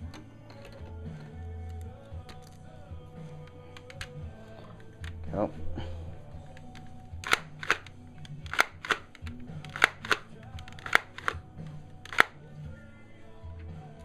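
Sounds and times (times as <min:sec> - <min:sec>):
plastic toy gun pump clacking: 0:03.7 - 0:04.2, 0:06.6 - 0:11.4, 0:12.0 - 0:12.4.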